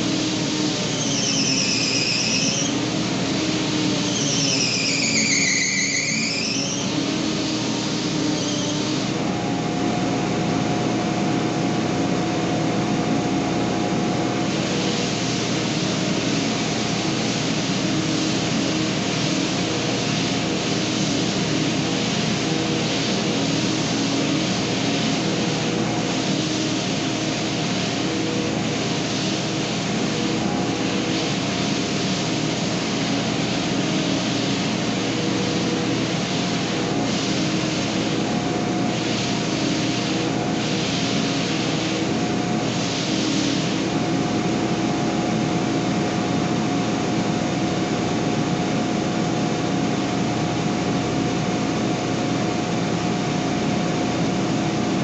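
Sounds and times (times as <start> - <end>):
high pitch-bending whines: 0.8 - 9.0.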